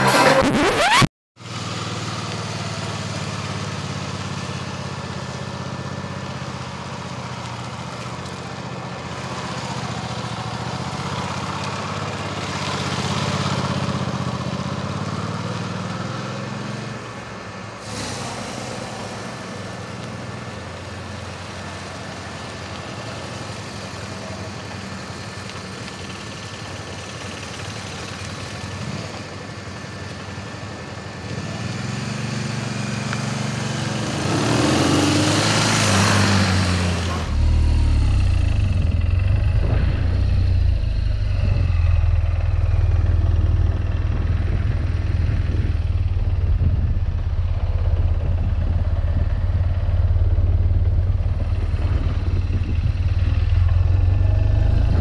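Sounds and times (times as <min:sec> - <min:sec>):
motorcycle engine running: 0:36.9 - 0:55.0.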